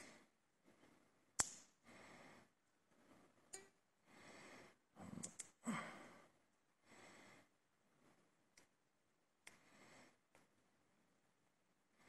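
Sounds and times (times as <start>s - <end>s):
quiet breathing: 0.0s - 8.6s, 9.5s - 10.5s
small sharp clicks: 1.4s - 1.7s.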